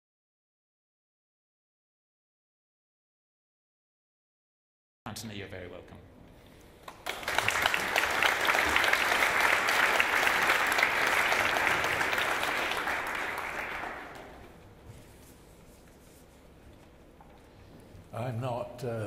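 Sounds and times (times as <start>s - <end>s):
audience applauding: 6.9s - 14.6s.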